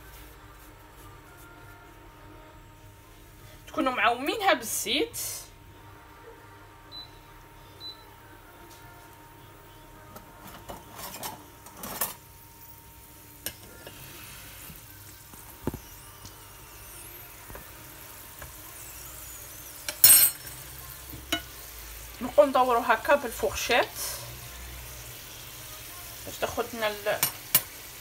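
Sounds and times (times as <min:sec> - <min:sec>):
dough sizzling in oil: 0:11.6 - 0:28.0.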